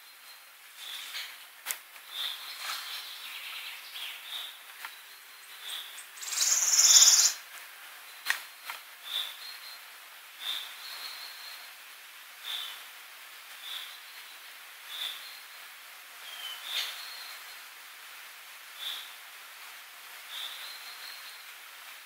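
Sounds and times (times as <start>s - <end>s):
very high rapid bird trill: 5.6s - 7.4s.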